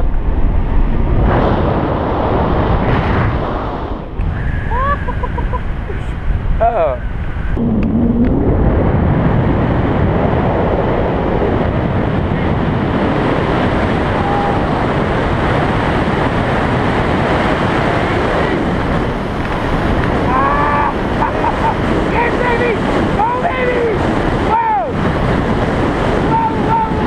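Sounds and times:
wind rushing over microphone: 0.0 - 27.0
faint voice calling out: 20.3 - 21.0.

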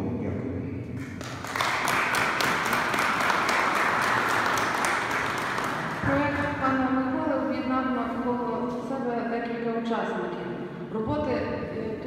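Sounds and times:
audience applauding: 1.0 - 6.1.

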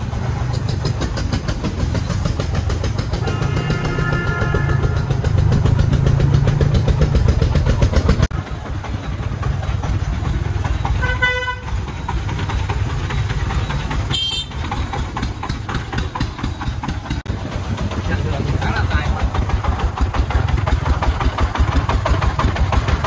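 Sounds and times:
diesel engine thudding: 0.0 - 23.0
high-pitched horn beep: 3.2 - 5.0
vehicle horn toot: 3.2 - 5.2, 11.0 - 11.8, 14.1 - 14.6.

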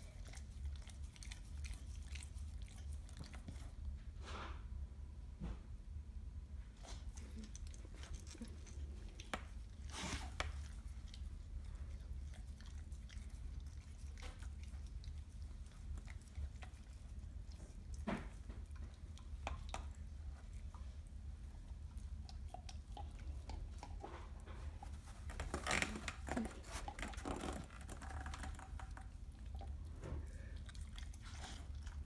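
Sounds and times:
dog gnawing on bone: 21.7 - 29.9.

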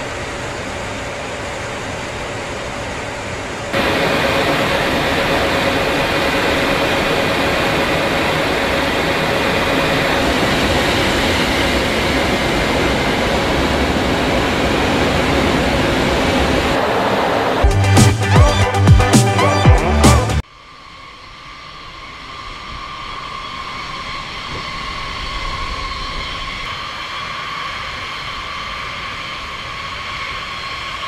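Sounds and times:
jet engines and airflow rushing: 0.0 - 31.0
faint steady whine: 3.4 - 17.6.

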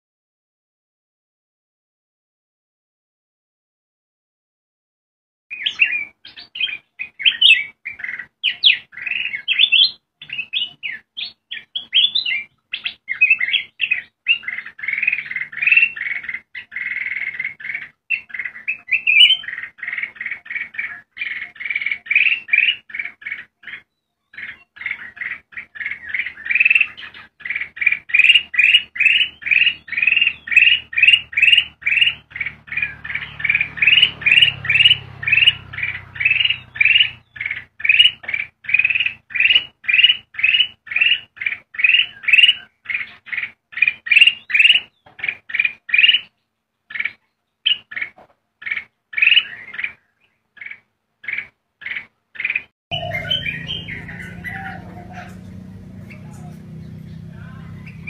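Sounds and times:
bird singing chirpy whistled notes: 5.5 - 19.7, 23.7 - 42.7, 52.9 - 54.8.

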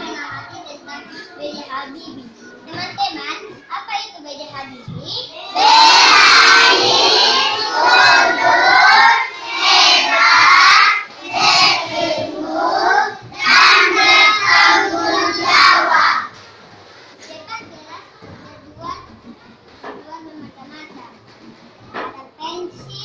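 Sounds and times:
children singing in unison: 5.4 - 16.3.

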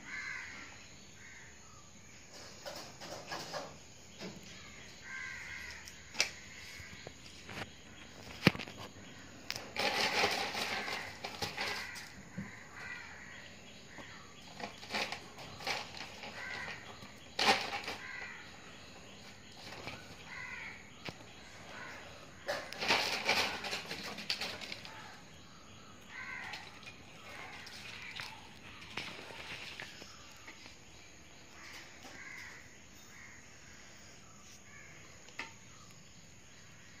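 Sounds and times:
plastic sack rustling: 9.7 - 12.0, 26.1 - 30.5.

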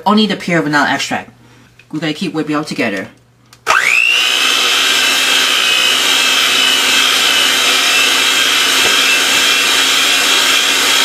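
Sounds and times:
electric mixer whisking: 3.6 - 11.0.

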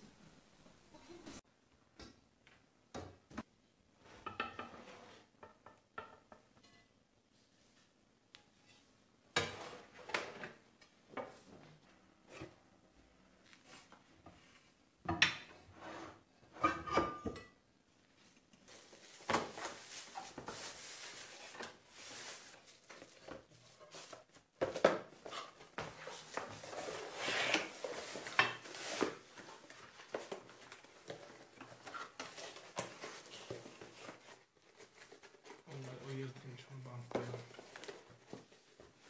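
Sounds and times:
dish and pots clinking: 16.6 - 17.6
plastic bag crinkling: 18.7 - 22.9.

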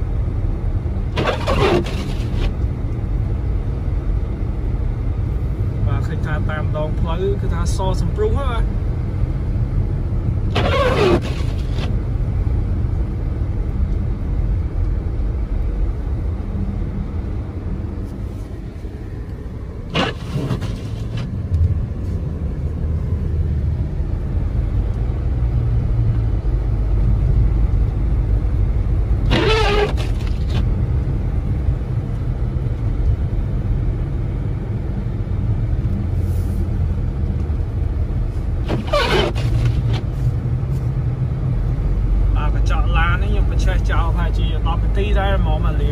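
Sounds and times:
car cabin road rumble: 0.0 - 45.9
windshield wipers swishing: 1.1 - 2.6, 10.5 - 12.0, 19.9 - 21.7, 29.2 - 30.8, 38.5 - 40.3.

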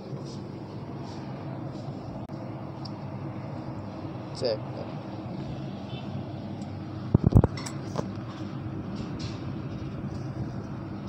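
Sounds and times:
low rumble of city traffic: 0.0 - 11.0
sharp knocks and clinks: 7.4 - 8.1.

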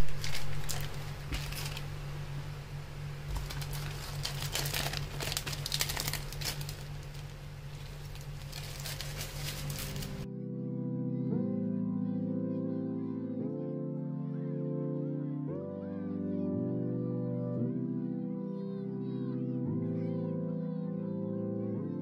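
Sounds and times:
plastic wrapping crinkling: 0.0 - 2.4, 3.0 - 10.3
steady low hum: 0.0 - 12.2.

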